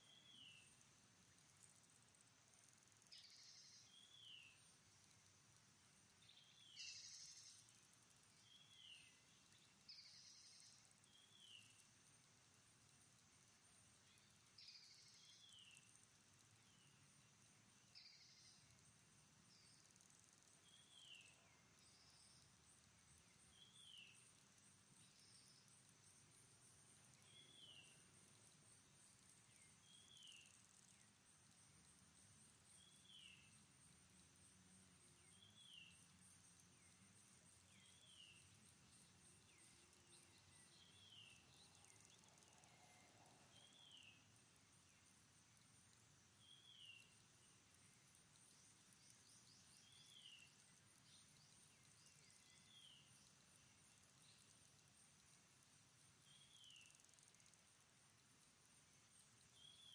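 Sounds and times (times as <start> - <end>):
pulsing insect trill: 17.8 - 59.9.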